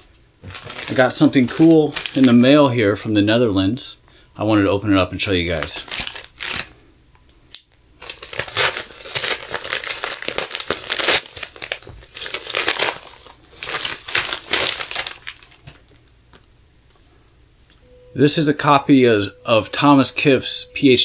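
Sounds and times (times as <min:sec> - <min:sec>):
plastic envelope crinkling and tearing: 0:00.4 - 0:02.6, 0:05.5 - 0:06.8, 0:08.0 - 0:16.0.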